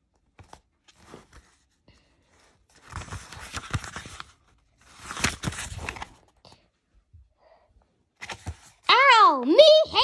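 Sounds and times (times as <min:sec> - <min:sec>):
paper pages rustling: 0:00.0 - 0:06.7, 0:08.1 - 0:08.9.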